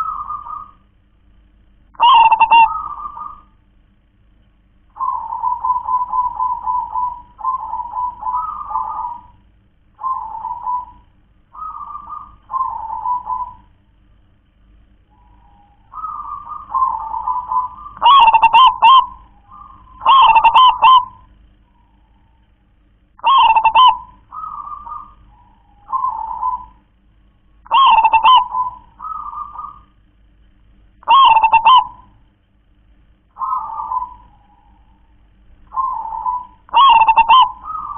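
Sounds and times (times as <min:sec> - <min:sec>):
dove cooing: 0:00.0 - 0:00.9, 0:02.0 - 0:03.6, 0:04.9 - 0:13.8, 0:15.1 - 0:22.5, 0:23.2 - 0:27.0, 0:27.6 - 0:30.0, 0:31.0 - 0:32.2, 0:33.3 - 0:37.9.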